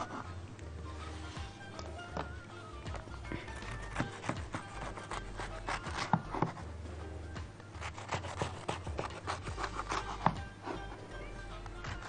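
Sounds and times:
serrated knife sawing: 3.6s - 6.5s, 7.8s - 10.9s.

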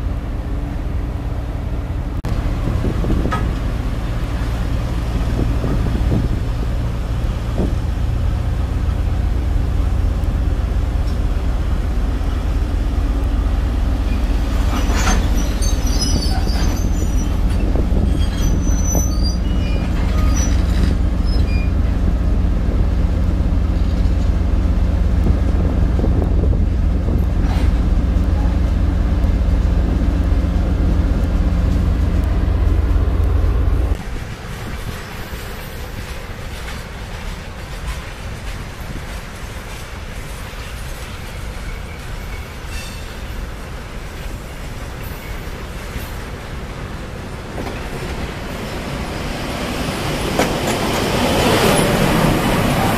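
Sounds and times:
locomotive low rumble: 0.0s - 39.2s
high-pitched wheel squeal: 14.1s - 21.8s.

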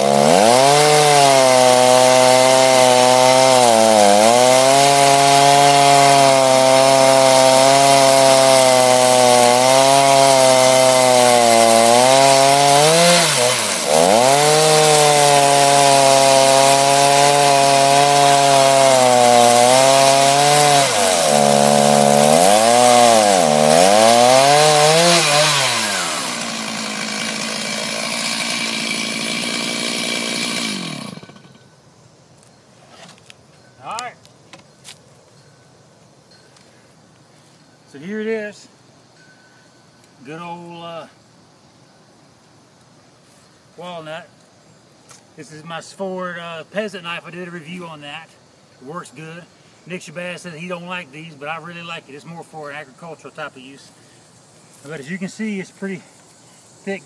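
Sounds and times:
chainsaw cutting log: 0.0s - 31.6s.

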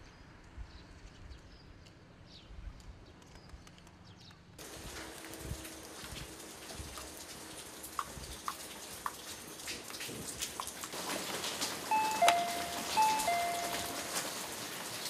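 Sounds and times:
doorbell ding-dong chime: 11.9s - 14.4s.

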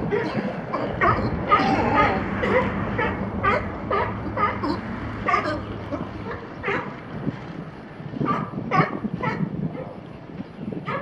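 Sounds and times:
sea lions barking: 0.0s - 7.0s.

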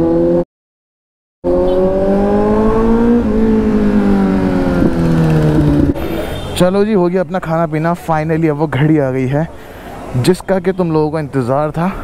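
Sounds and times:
motorcycle engine accelerating: 1.4s - 6.2s.

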